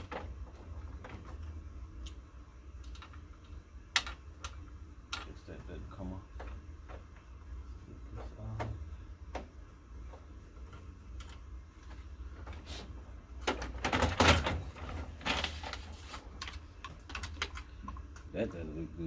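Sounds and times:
plastic rattling and sliding: 0.0s - 1.6s, 10.1s - 17.8s
plastic parts clicking and scraping: 13.4s - 18.1s.

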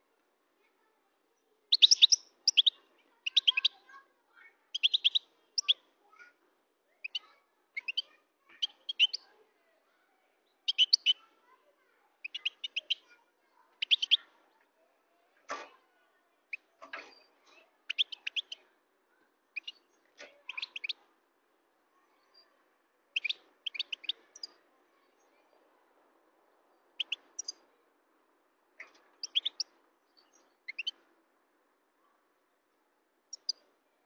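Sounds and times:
goldfinch twittering song: 1.7s - 3.8s, 4.7s - 5.8s, 10.7s - 11.2s, 13.8s - 14.2s, 17.9s - 18.6s, 23.2s - 24.5s, 29.2s - 29.7s, 30.3s - 30.9s.

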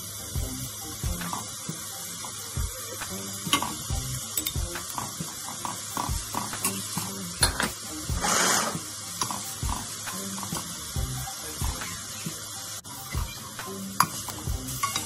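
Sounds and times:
vegetables sizzling in oil: 0.0s - 15.0s
metal spoon scraping a pan: 7.4s - 9.6s, 14.0s - 15.0s.

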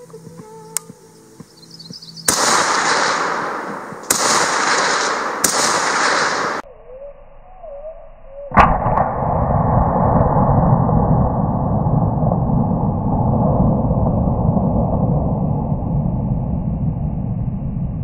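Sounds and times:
rifle shots: 2.3s - 6.6s.

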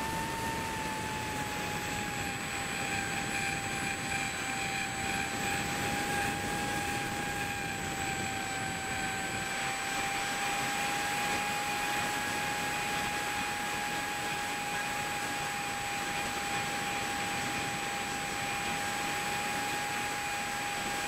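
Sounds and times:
electric motor high whine: 0.0s - 21.0s.

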